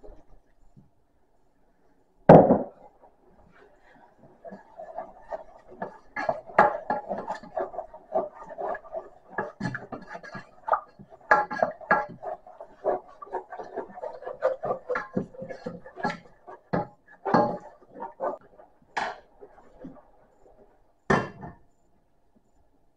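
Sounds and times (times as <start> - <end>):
utensil scraping metal saucepan: 2.9 - 18.5.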